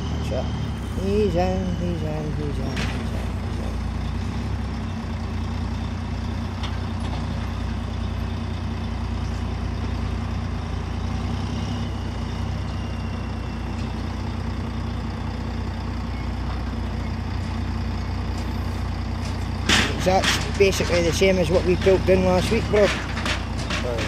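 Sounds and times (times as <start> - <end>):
diesel truck engine idling: 0.0 - 24.0.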